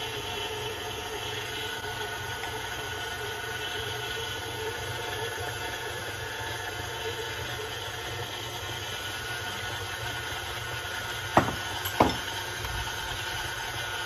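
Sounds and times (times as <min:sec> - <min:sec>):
stand mixer running: 0:00.0 - 0:14.0
sharp knocks: 0:11.4 - 0:12.2.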